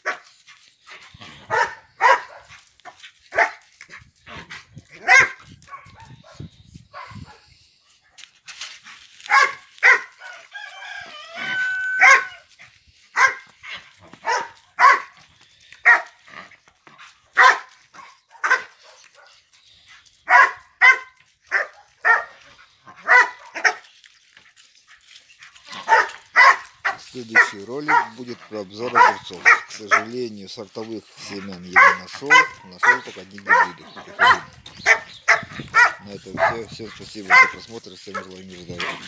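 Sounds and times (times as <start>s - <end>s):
dog barking: 1.4s - 2.6s, 3.3s - 3.6s, 5.0s - 7.4s, 9.2s - 10.4s, 11.6s - 12.4s, 13.1s - 13.5s, 14.2s - 15.2s, 15.8s - 16.2s, 17.4s - 19.4s, 20.3s - 23.9s, 25.7s - 28.2s, 28.8s - 30.2s, 31.3s - 39.0s.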